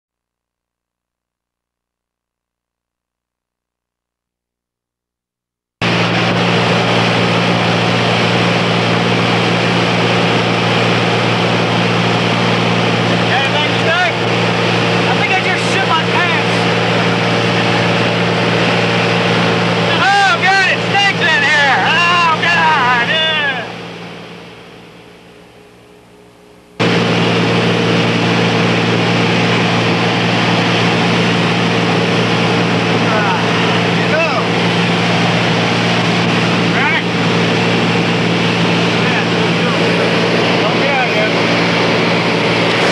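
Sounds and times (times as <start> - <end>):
aircraft engine droning: 5.8 - 42.9.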